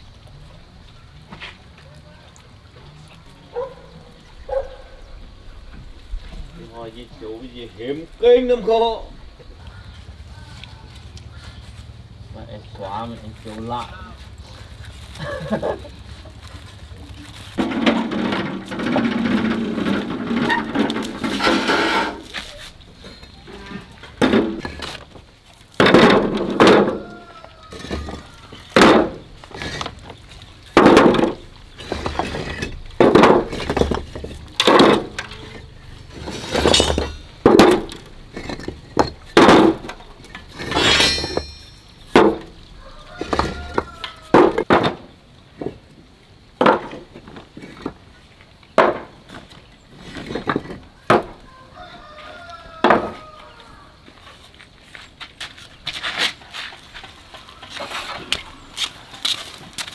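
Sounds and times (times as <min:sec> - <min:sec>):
bricks clinking in wheelbarrow: 0:17.5 - 0:45.8, 0:46.6 - 0:48.1, 0:48.8 - 0:51.4.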